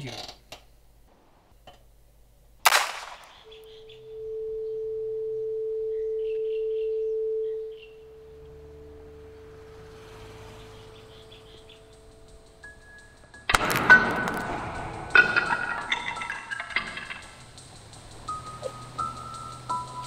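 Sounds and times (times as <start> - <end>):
low outdoor rumble: 0.6 - 20.0
steady pure tone: 3.1 - 20.0
faint bird chirps: 3.2 - 12.1.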